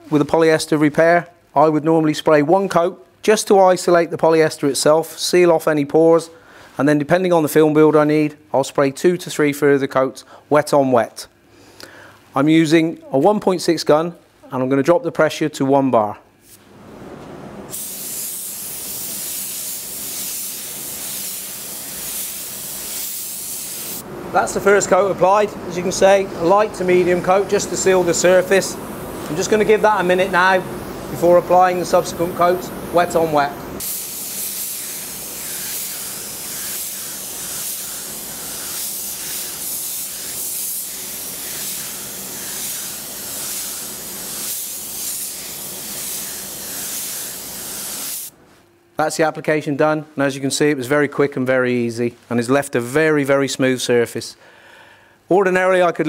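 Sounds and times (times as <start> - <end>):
paint spray gun hissing: 17.7 - 24.0, 26.9 - 48.3.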